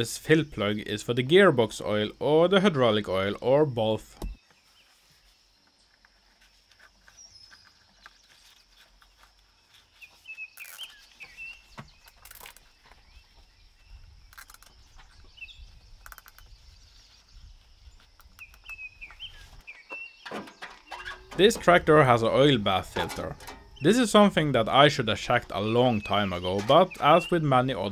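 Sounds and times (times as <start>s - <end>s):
bird chirps: 1.7s - 27.9s
sharp clicks and knocks: 19.9s - 27.9s.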